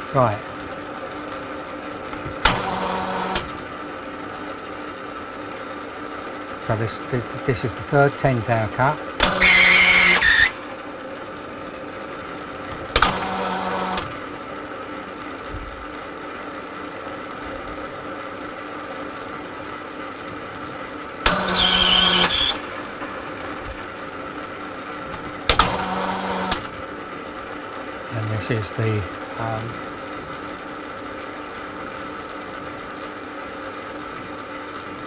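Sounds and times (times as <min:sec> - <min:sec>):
lathe humming: 0:09.1 - 0:15.1, 0:21.2 - 0:28.0
harsh rasp of cutting tool: 0:09.2 - 0:10.8, 0:21.3 - 0:22.8
high squeal: 0:09.4 - 0:10.8, 0:21.4 - 0:24.2.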